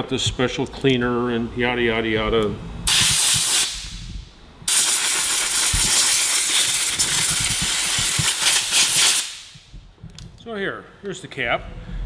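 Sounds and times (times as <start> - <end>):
compressed air blow gun hissing: 2.9 - 4.0, 4.7 - 9.6.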